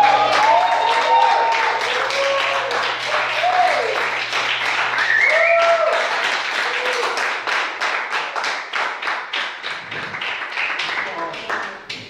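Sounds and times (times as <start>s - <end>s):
shouted cheer: 0.0s - 7.5s
audience applauding: 0.0s - 12.0s.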